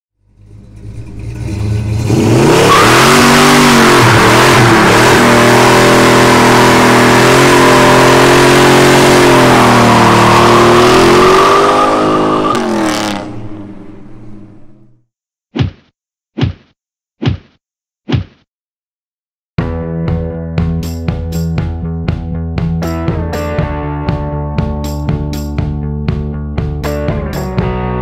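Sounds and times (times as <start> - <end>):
car engine revving: 0.2 - 15.0
tyres screeching: 9.4 - 14.7.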